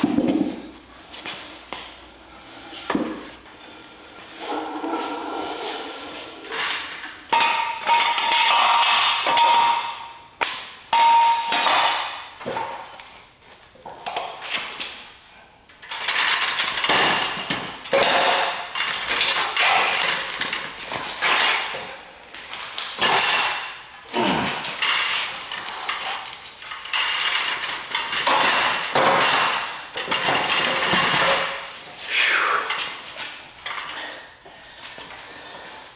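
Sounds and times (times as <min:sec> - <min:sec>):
metal frame clanking and scraping: 0:02.4 - 0:10.2, 0:15.8 - 0:34.4.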